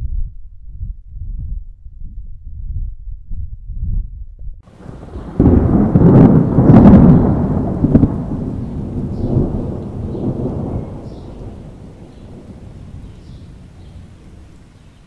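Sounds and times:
thunder cracking and rumbling: 0:04.7 - 0:15.0.

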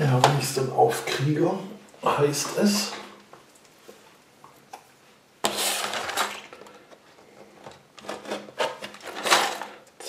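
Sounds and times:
loud rustling scrape: 0:05.4 - 0:06.6, 0:08.0 - 0:09.8.

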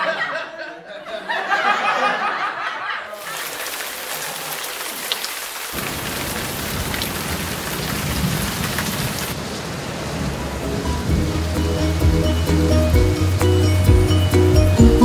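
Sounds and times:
rain hissing: 0:03.2 - 0:15.0
low rumble of thunder: 0:05.8 - 0:11.4.

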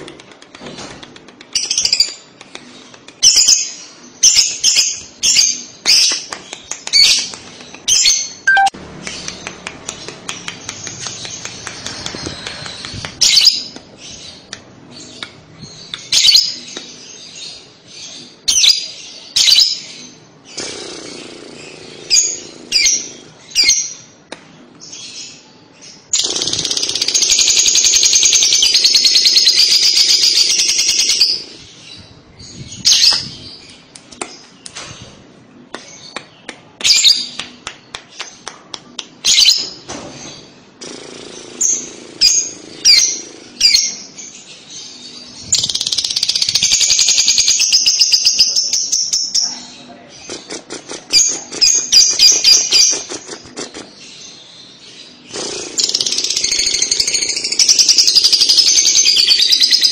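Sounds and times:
lovebird chirping: 0:06.9 - 0:10.1.

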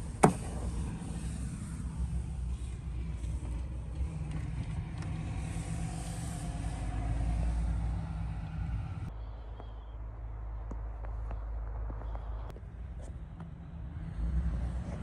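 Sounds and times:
tyre and wind hiss: 0:00.0 - 0:09.1
van engine and road rumble: 0:00.0 - 0:15.0.

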